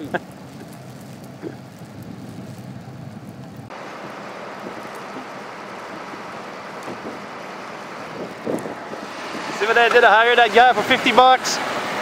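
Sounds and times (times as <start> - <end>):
wind noise on microphone: 0.0 - 3.7, 6.8 - 7.2, 8.0 - 9.8
vehicle engine idling: 0.0 - 12.0.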